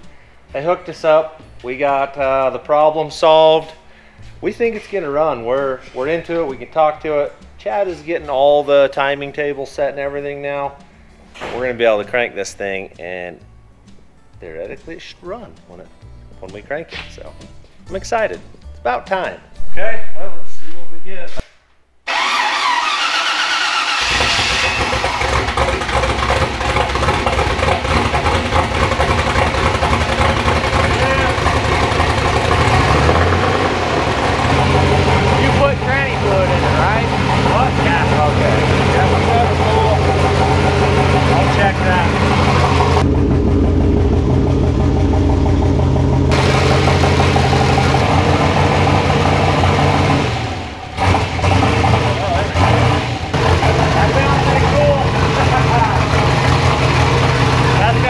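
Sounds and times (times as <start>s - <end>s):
engine idling: 22.1s - 58.0s
starter cranking engine: 22.1s - 58.0s.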